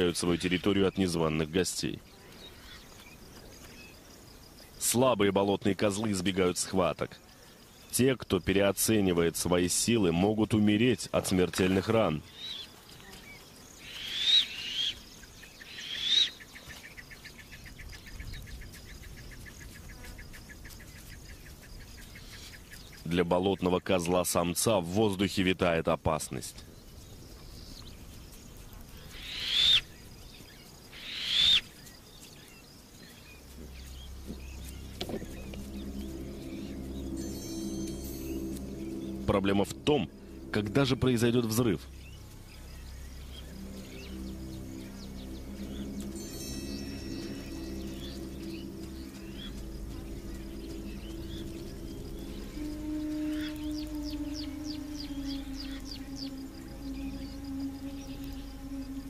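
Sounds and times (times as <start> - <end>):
bird calling high notes: 13.8 - 16.5, 29.1 - 29.9, 30.9 - 31.8, 33.1 - 59.0
low music drone: 33.2 - 59.0.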